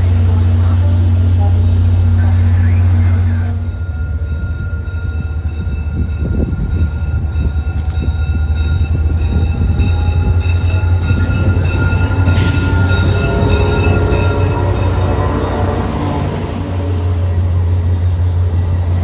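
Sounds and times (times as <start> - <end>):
diesel train rumbling past: 0.0 - 19.0.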